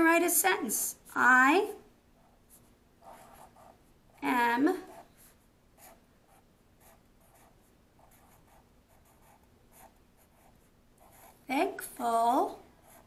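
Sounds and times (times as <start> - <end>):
marker pen writing on paper: 2.2 - 3.8, 4.8 - 11.4.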